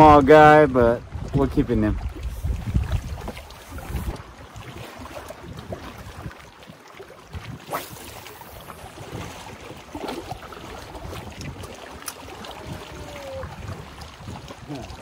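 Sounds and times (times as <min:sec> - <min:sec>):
wind buffeting microphone: 0:00.0 - 0:15.0
fishing rod cast swish: 0:07.5 - 0:08.8.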